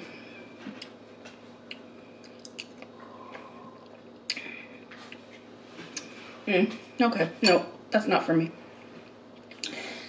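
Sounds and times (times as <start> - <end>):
person chewing food: 1.6 - 6.1
small mouth clicks: 1.7 - 2.9.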